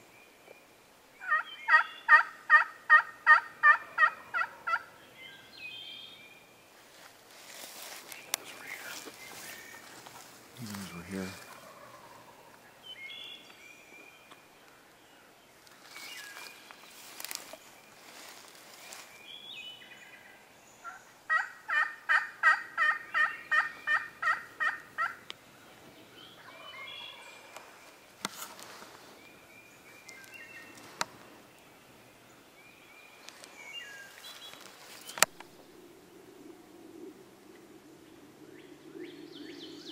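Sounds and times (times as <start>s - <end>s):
songbirds chirping: 0.0s - 39.9s
turkey yelping: 1.2s - 4.9s, 11.4s - 12.5s, 20.9s - 25.2s.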